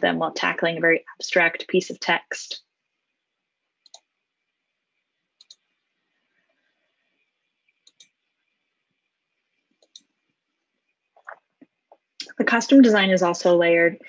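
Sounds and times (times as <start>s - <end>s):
computer mouse clicking: 3.8s - 4.1s, 5.4s - 5.8s, 7.6s - 8.3s, 9.6s - 10.2s.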